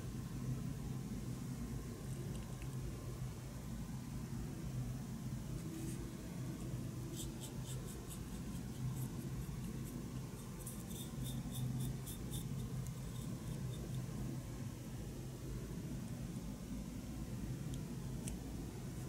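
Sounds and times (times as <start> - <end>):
paintbrush scratching: 5.6 - 14.1.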